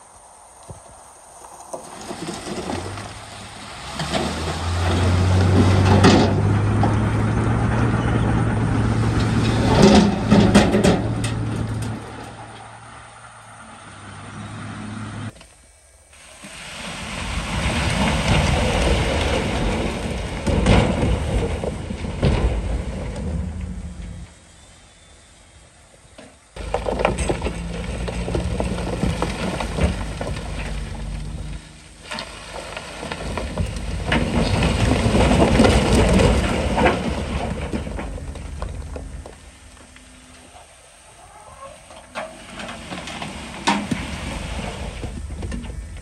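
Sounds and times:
rock rumbling and clattering: 0.6 - 12.7, 16.5 - 24.4, 26.6 - 46.0
heavy diesel engine running: 2.0 - 15.3, 26.6 - 40.7.

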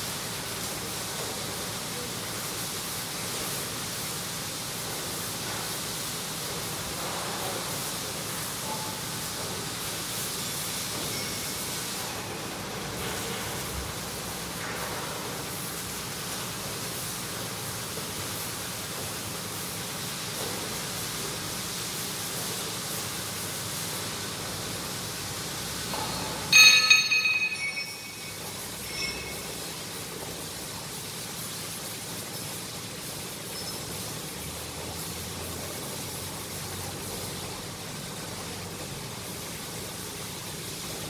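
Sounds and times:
workshop background noise: 0.0 - 41.0
metal clang ringing: 26.0 - 29.6.

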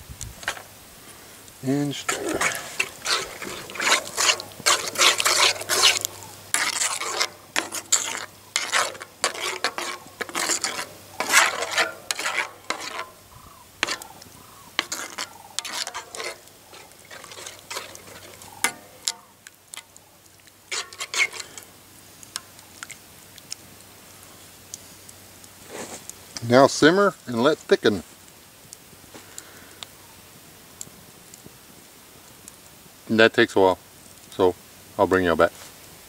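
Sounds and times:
spoon scraping a skillet: 1.7 - 23.6.

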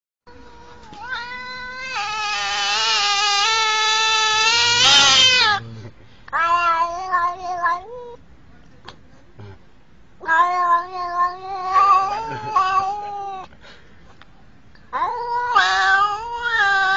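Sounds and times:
cat meowing: 0.3 - 5.7, 6.3 - 8.2, 10.2 - 13.5, 14.9 - 16.9.

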